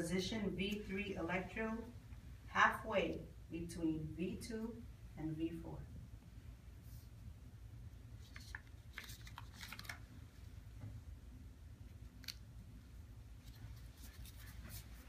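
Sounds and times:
low steady hum: 0.0 - 15.0
electrode pad crinkling and clicking: 8.2 - 11.0.

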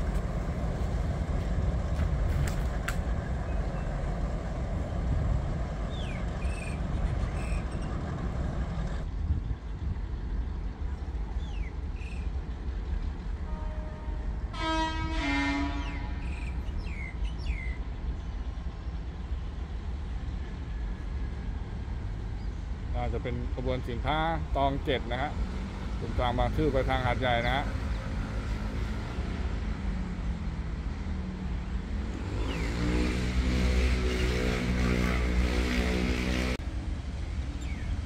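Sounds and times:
low rumble of rail traffic: 0.0 - 38.0
train horn blast: 13.4 - 16.4.

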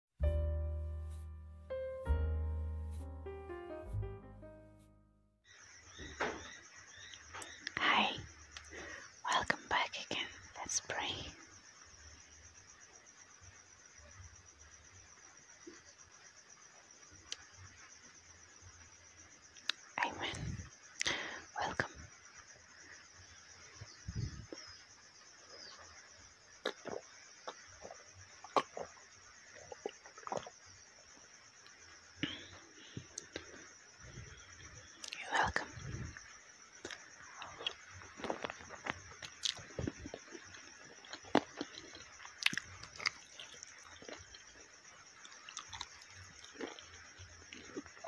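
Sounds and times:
wet mouth clicks: 26.6 - 27.6, 39.2 - 40.0, 41.0 - 44.4
clicks and gulps drinking water: 26.6 - 29.0, 29.6 - 30.6
chewing and biting food: 26.6 - 30.5, 36.8 - 44.6, 45.2 - 48.0.

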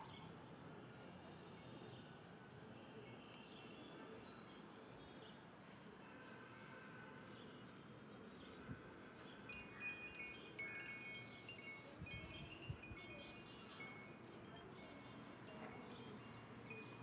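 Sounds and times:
chimes tinkling: 9.5 - 17.0.

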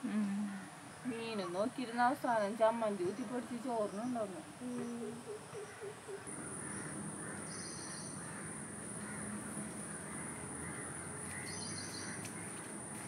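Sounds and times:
birds calling: 0.5 - 13.0
higher chirping calls: 3.0 - 6.5.

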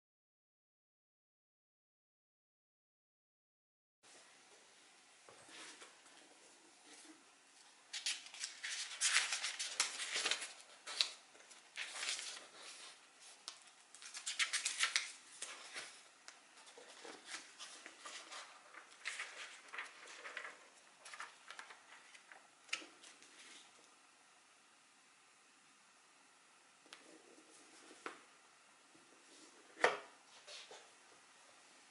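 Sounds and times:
book pages rustling and flicking: 7.9 - 23.8, 26.9 - 28.3.

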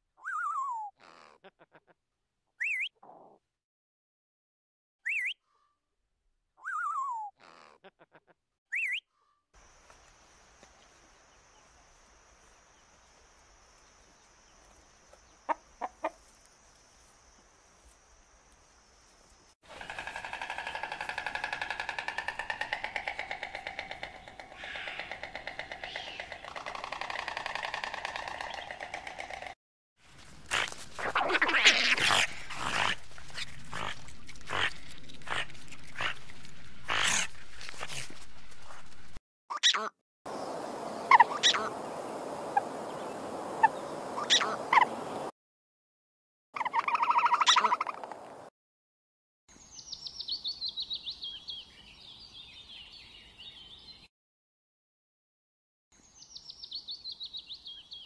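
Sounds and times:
chicken clucking: 15.5 - 16.2
animal breathy puffs: 32.1 - 39.2.

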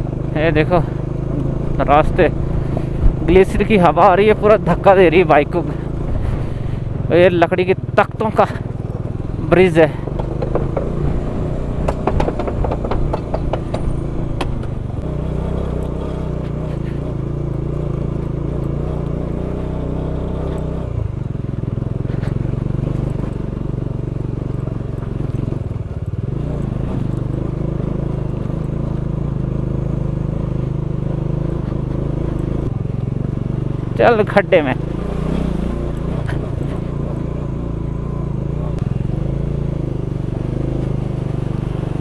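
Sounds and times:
motorcycle engine running: 0.0 - 42.0
clattering over wooden planks: 10.0 - 14.7.

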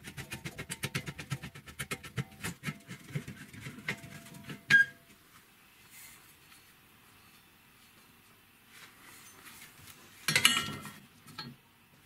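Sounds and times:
ringing metal clank: 10.3 - 11.6.

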